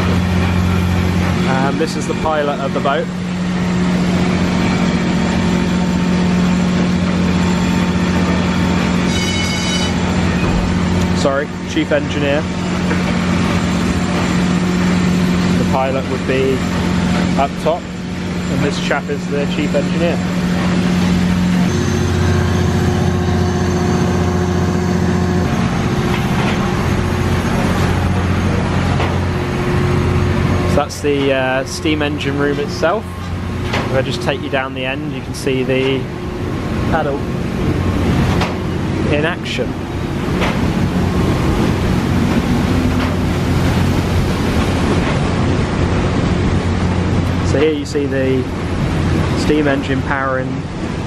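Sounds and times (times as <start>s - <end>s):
engine room machinery humming: 0.0s - 51.0s
short high tone: 9.1s - 10.0s.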